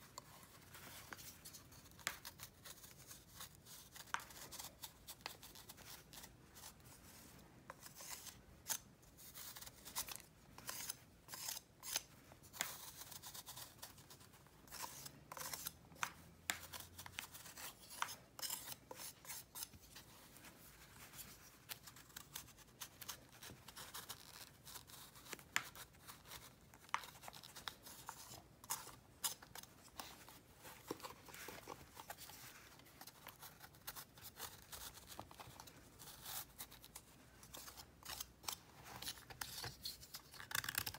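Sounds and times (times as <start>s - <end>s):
knife blade scraping powder block: 7.8s - 13.6s, 14.7s - 15.8s, 16.6s - 19.7s.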